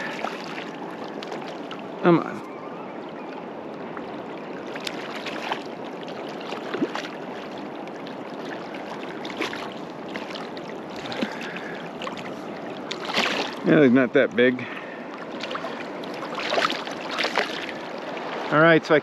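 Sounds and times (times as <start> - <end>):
small water splashes: 0.0 - 19.0.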